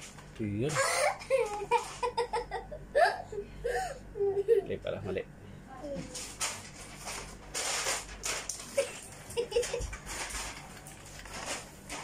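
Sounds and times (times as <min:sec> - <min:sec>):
child giggling: 0:00.7 - 0:04.8, 0:08.7 - 0:09.9.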